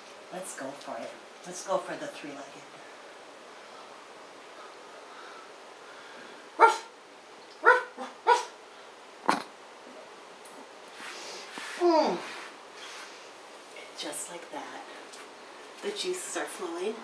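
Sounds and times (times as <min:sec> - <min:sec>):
dog barks: 0:06.6 - 0:06.9, 0:07.6 - 0:08.6.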